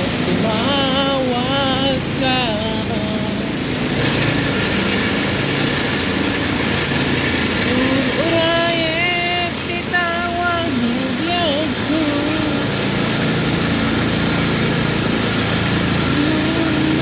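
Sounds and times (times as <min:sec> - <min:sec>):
person singing: 0:00.0 - 0:03.6, 0:07.6 - 0:13.3, 0:15.9 - 0:17.0
ventilation fans droning: 0:00.0 - 0:17.0.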